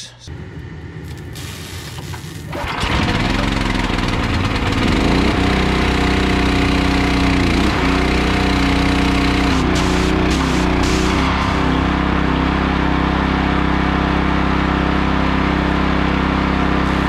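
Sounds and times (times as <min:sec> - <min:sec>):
small gasoline engine running: 0:00.4 - 0:17.0
pressure washer wand spraying: 0:01.1 - 0:02.6, 0:09.4 - 0:11.2.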